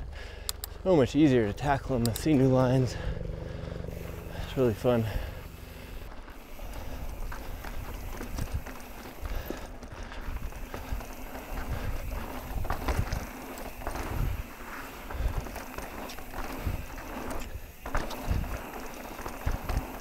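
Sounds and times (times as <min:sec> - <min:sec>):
bike rattling and thumping: 0:00.0 - 0:20.0
tyres crunching on dirt trail: 0:00.0 - 0:20.0
wind noise on microphone: 0:06.9 - 0:09.4, 0:10.0 - 0:14.5, 0:16.5 - 0:18.6.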